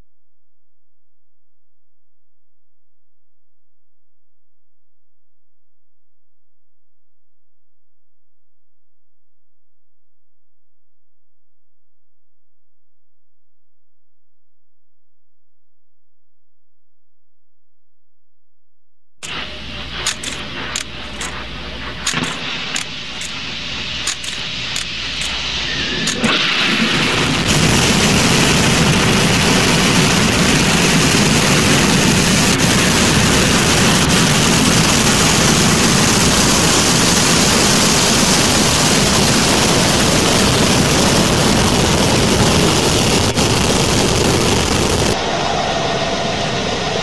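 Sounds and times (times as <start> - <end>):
low hum: 0.0 - 47.0
sharp clicks: 19.2 - 25.4
rocket launch roar: 19.2 - 47.0.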